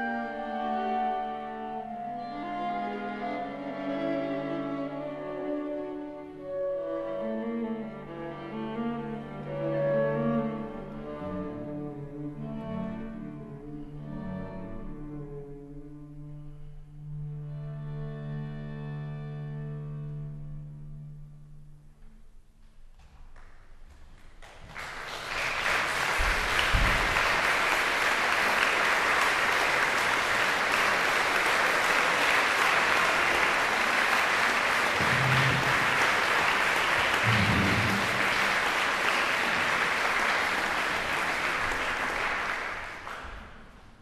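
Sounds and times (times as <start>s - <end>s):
audience applause: 24.4s - 43.8s.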